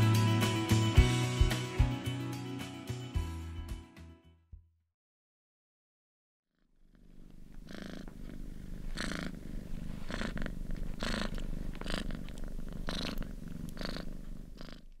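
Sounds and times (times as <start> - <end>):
cat purring: 6.6 - 15.0.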